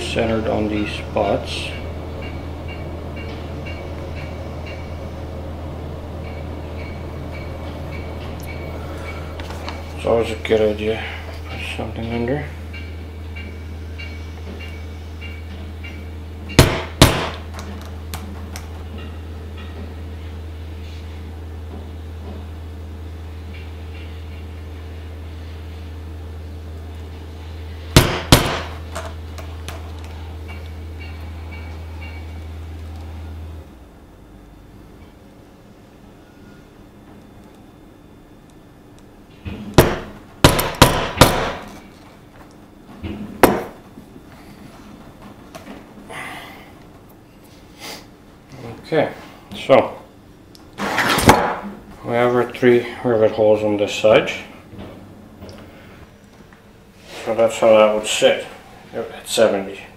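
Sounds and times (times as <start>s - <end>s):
mallet striking hole punch: 16.6s - 17.4s, 28.0s - 28.8s, 39.8s - 41.7s.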